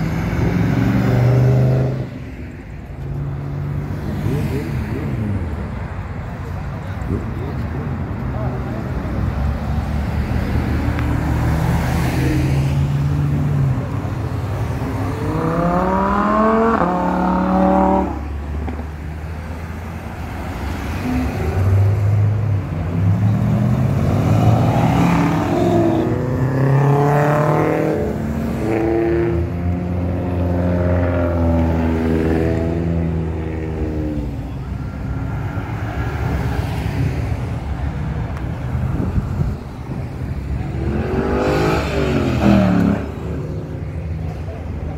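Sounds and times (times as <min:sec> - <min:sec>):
car engines revving: 0:00.0 - 0:44.9
passing traffic: 0:00.0 - 0:44.9.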